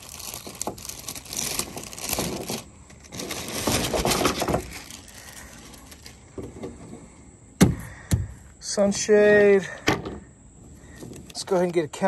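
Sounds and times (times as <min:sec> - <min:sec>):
plastic bag crinkling: 0:00.0 - 0:06.4
handling rustles: 0:00.0 - 0:07.1.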